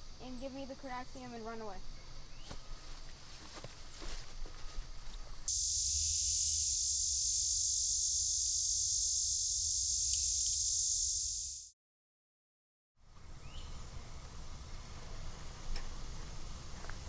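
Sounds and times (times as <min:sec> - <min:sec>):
steady high hiss: 0:05.5 - 0:11.7.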